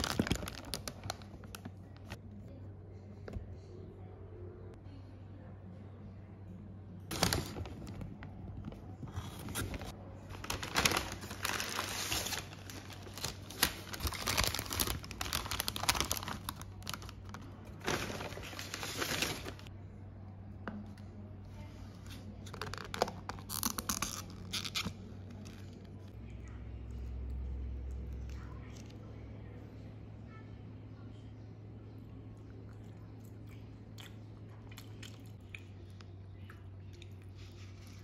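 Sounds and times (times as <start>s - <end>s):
paper bags rustling: 0.0s - 2.1s, 7.1s - 19.7s
faint low hum: 0.0s - 38.0s.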